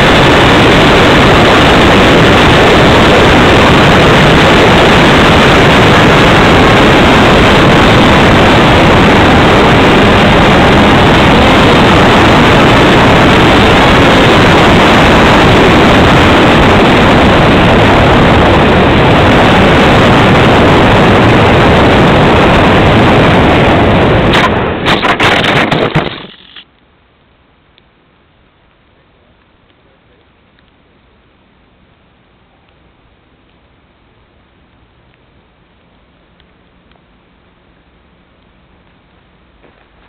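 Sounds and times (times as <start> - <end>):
wind rush and electric motor: 0.0 - 26.6.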